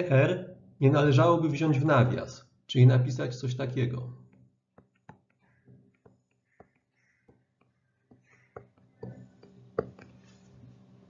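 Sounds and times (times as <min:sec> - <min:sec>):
stylus tapping and scratching: 0:04.2 - 0:10.7.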